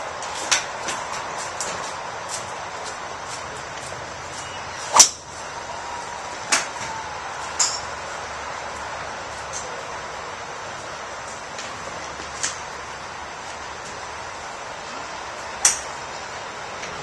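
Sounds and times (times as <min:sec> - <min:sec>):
golf club striking ball: 0:04.9 - 0:05.2.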